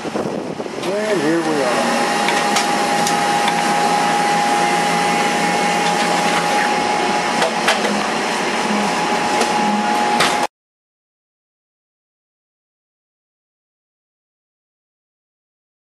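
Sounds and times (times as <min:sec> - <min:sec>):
bus mechanical whirring: 0:00.0 - 0:10.5
constant whine: 0:00.0 - 0:10.5.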